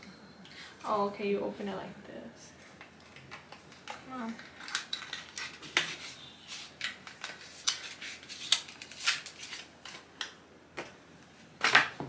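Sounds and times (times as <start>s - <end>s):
paper tearing: 5.8s - 10.0s.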